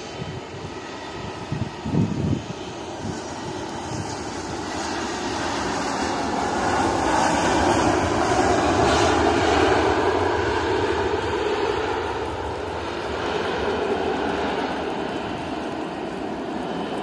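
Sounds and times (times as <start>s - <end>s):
jet engines rushing: 0.0s - 17.0s.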